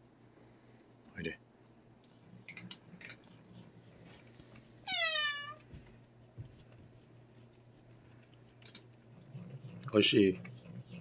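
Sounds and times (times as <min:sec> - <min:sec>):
cat meowing: 0:04.8 - 0:05.6.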